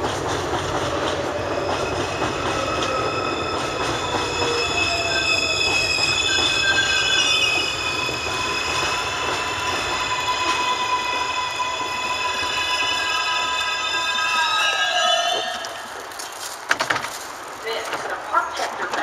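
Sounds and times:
train cars rumbling and rattling: 0.0 - 19.0
subway wheels squealing: 0.6 - 16.4.

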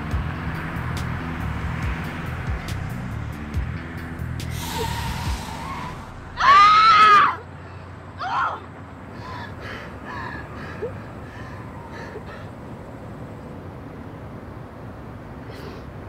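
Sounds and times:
woman screaming: 4.6 - 7.5, 8.2 - 8.7
woman sobbing: 9.2 - 12.5.

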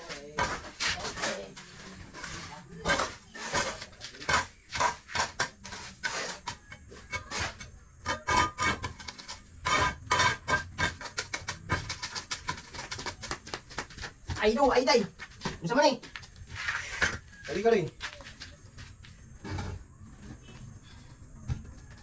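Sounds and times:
trowel tapping and scraping blocks: 0.0 - 14.6.

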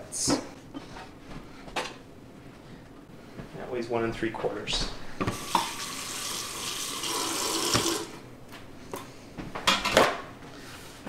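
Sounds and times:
water running from faucet into sink: 5.3 - 8.1.

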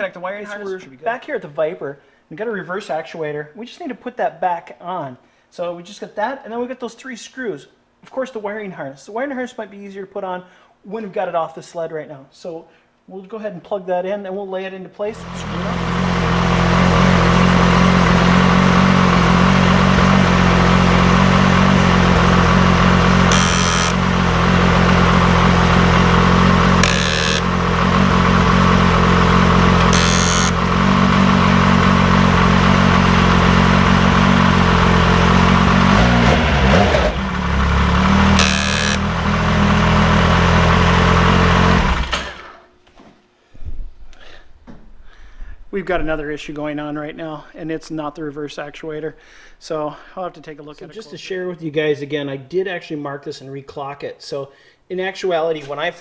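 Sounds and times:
snowmobile engine idling: 15.2 - 42.4.

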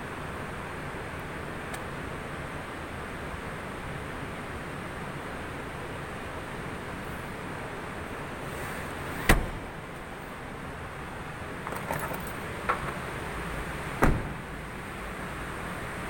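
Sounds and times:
car door shutting: 9.2 - 9.8, 14.0 - 14.6
light clicks and rattles: 11.6 - 13.0
car seatback latching knock: 14.0 - 14.5.

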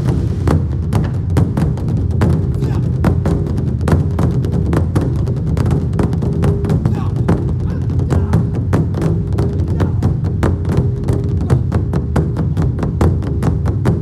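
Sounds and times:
steady low bass: 0.0 - 3.8
percussion ensemble drumming: 0.0 - 14.0.

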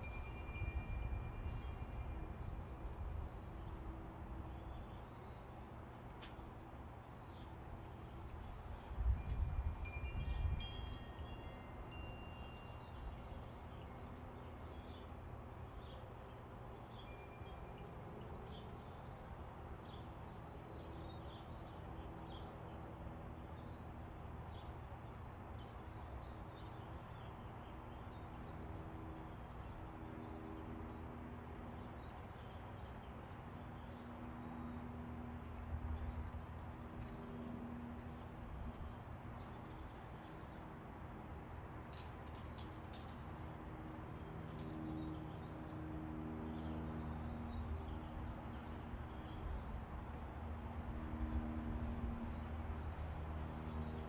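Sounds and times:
metal wind chimes ringing: 0.0 - 3.2, 8.9 - 14.1.

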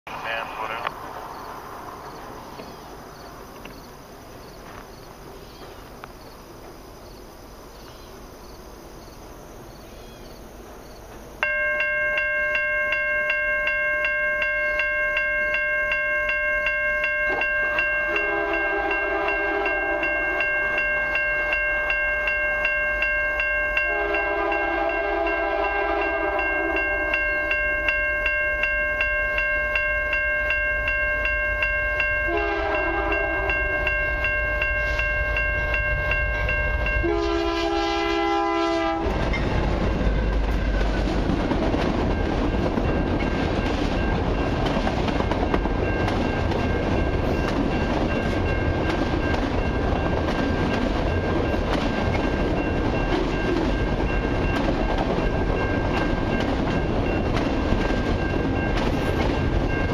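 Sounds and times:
level crossing bell ringing: 11.4 - 37.4
locomotive horn blasts: 18.1 - 20.5, 23.8 - 27.6, 32.2 - 35.1, 36.3 - 39.2.

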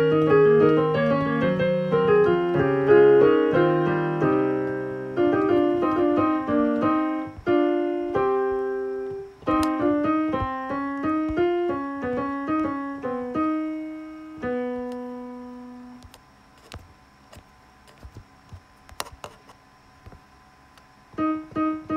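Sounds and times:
piano melody: 0.0 - 16.0, 21.2 - 21.9.

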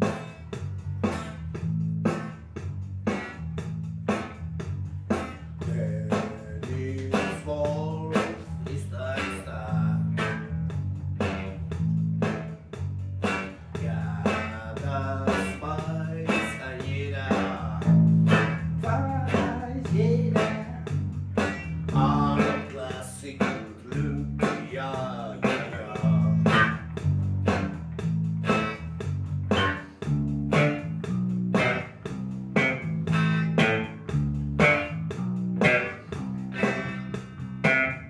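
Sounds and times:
electric bass guitar plucked: 0.0 - 38.0
man singing: 5.6 - 10.5, 13.8 - 20.9, 21.9 - 26.8.

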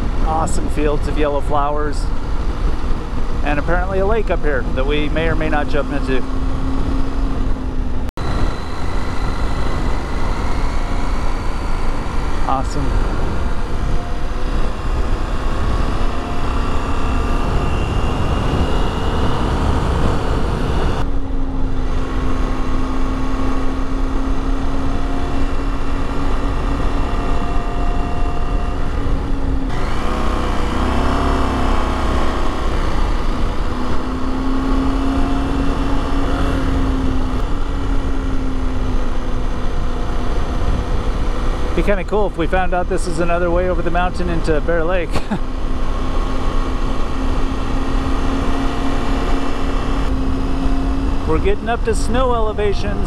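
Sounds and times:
wind noise: 0.0 - 42.4
motorcycle engine running: 0.0 - 53.0.

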